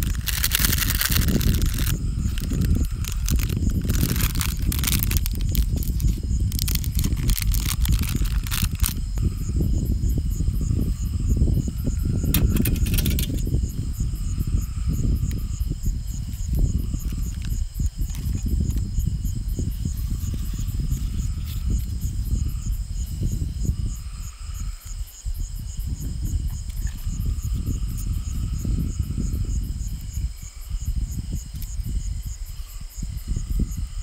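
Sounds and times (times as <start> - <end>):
crackling clicks: 0.0 - 9.0, 12.3 - 13.4
crickets chirping: 0.0 - 34.0.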